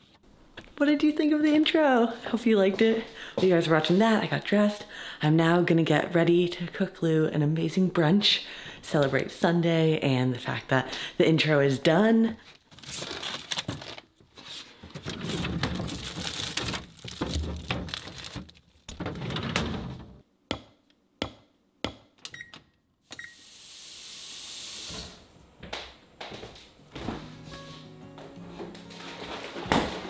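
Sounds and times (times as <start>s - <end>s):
steady hiss: 23.3s - 25.3s.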